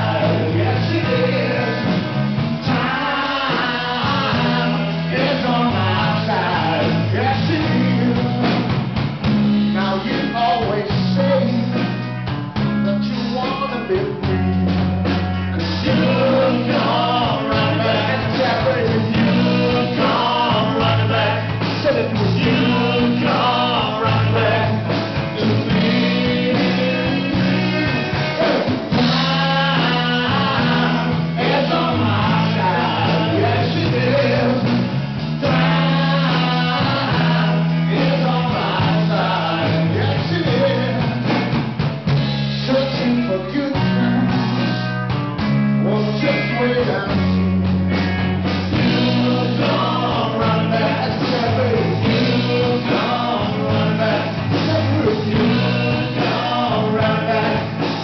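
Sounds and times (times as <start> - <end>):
person singing: 0.0 - 8.7, 15.5 - 41.4, 42.6 - 44.8, 48.7 - 58.0
rock band playing: 0.0 - 58.0.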